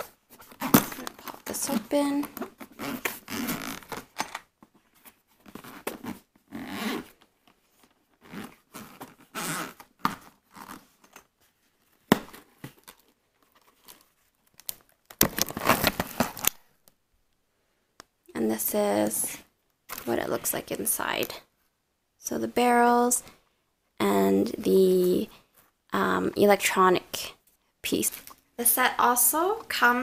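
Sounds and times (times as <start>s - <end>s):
zipper being drawn open: 2.6s - 4.1s, 5.6s - 7.2s, 8.2s - 10.9s.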